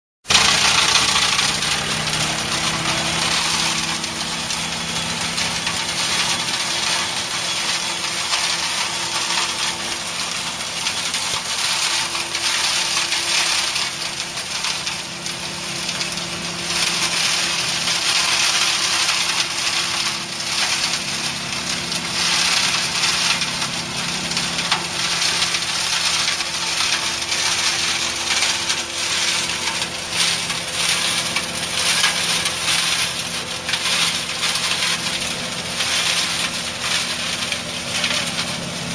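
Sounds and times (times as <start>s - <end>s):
grass rattling through blower: 0.2s - 38.9s
tractor and blower fan hum: 0.2s - 38.9s.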